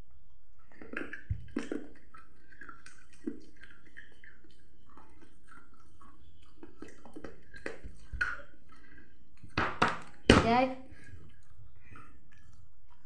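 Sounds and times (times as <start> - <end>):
children chewing sweets: 0.0 - 13.0.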